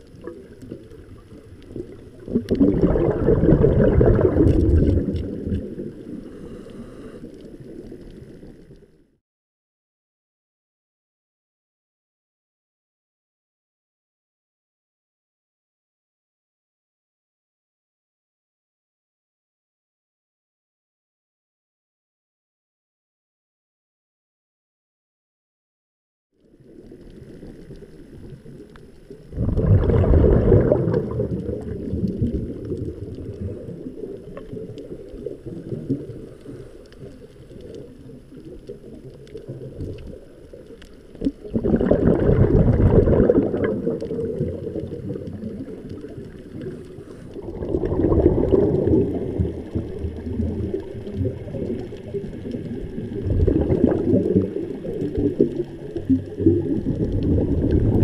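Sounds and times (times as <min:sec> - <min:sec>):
underwater exhalation bubbling: 0:00.0 - 0:08.6, 0:26.8 - 0:58.0.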